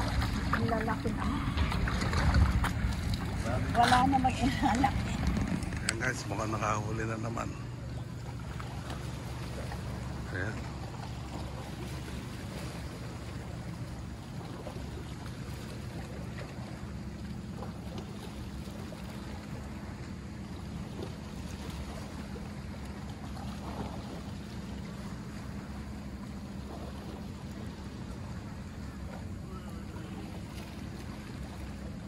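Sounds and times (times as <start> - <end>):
wind buffeting microphone: 0.0 - 6.8
wind and water rumble: 0.0 - 32.0.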